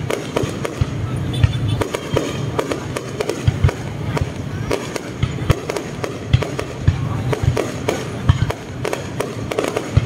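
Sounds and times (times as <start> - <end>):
fireworks bangs and crackles: 0.0 - 10.0.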